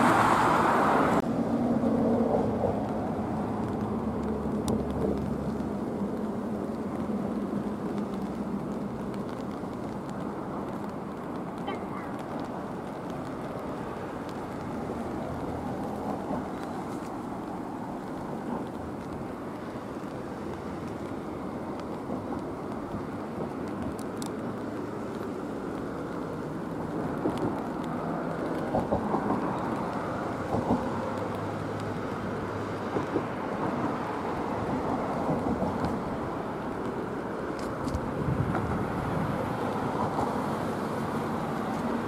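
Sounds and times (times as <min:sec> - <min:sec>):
wind buffeting microphone: 0:25.5 - 0:42.0.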